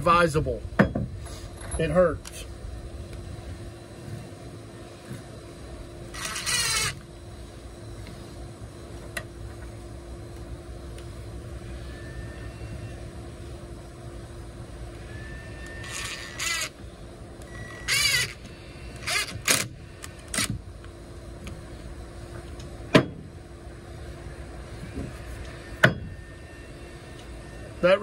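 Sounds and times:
cordless drill whirring into wood: 6.1 - 7.0, 15.1 - 16.8, 17.7 - 20.6.

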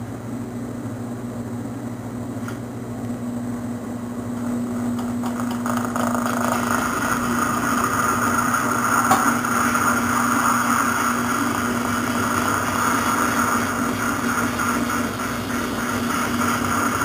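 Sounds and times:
tire-cutting machine humming: 4.4 - 17.0.

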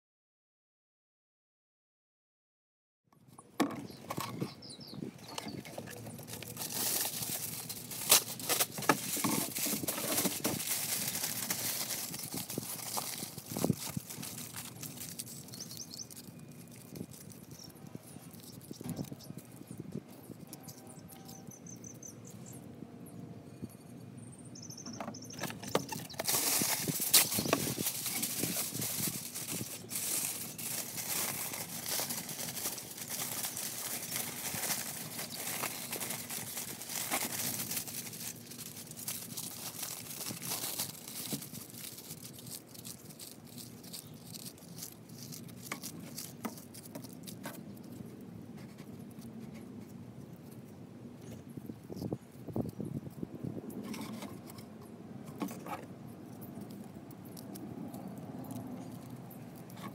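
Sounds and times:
aluminium foil crinkling: 5.2 - 21.5, 25.4 - 54.7, 55.4 - 59.9.

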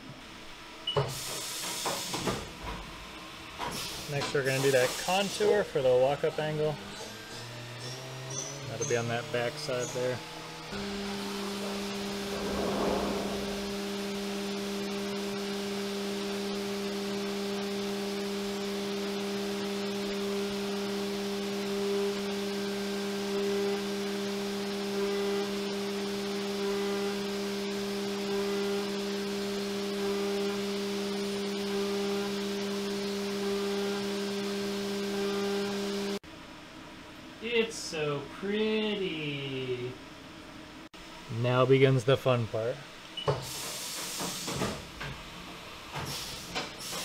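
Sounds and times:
end mill cutting steel: 10.7 - 14.7
milling machine spindle humming: 16.0 - 36.2.

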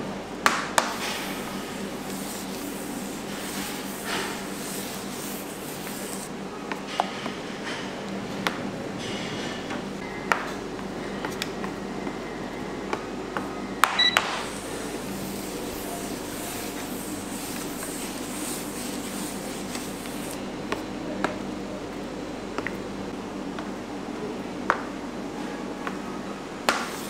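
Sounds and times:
room hum: 0.0 - 27.0
metal scraper scraping on marble: 2.3 - 6.3
short electronic beep: 14.0 - 14.2.

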